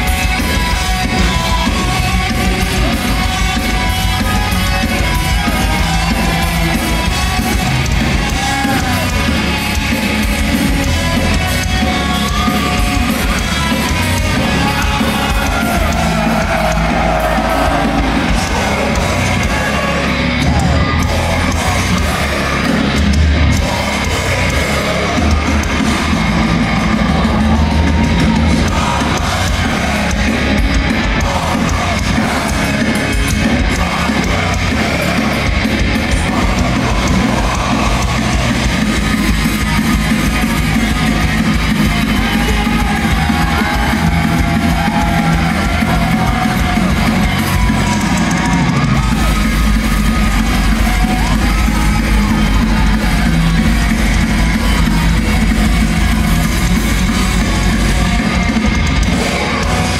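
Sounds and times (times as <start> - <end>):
distorted electric guitars: 0.0 - 59.9
pounding drum kit: 0.0 - 59.9.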